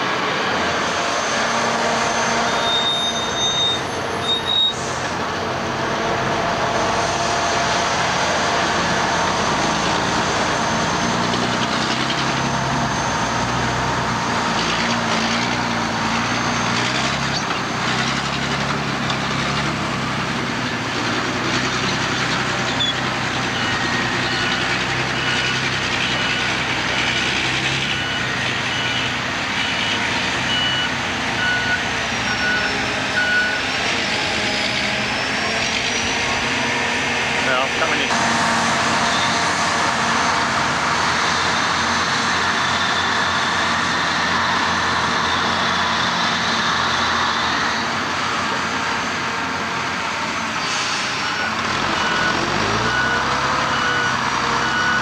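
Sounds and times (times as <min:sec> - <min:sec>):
truck diesel engine running: 0:00.0 - 0:55.0
reversing alarm beeping: 0:01.0 - 0:05.0, 0:21.9 - 0:36.3, 0:39.0 - 0:39.4, 0:50.8 - 0:55.0.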